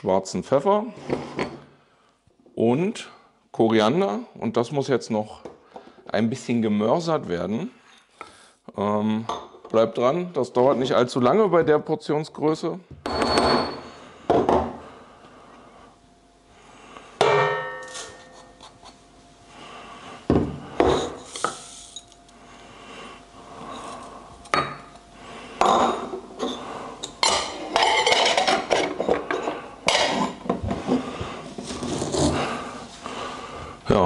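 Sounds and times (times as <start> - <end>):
ringing clink: 17.2 - 18.5.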